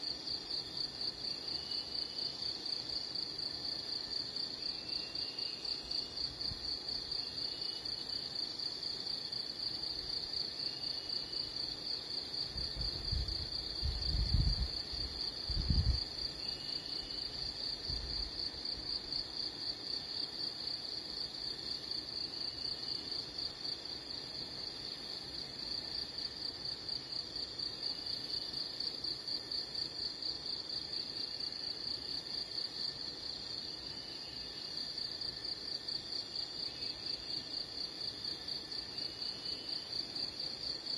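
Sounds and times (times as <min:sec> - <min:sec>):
insect trill: 0:00.0 - 0:40.9.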